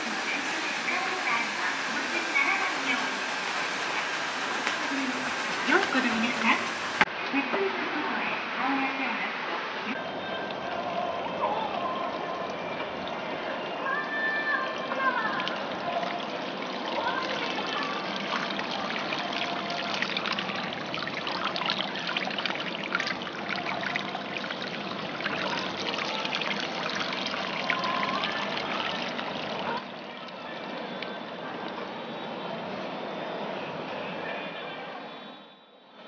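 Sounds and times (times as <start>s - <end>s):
water trickling into stone basin: 14.4s - 31.8s.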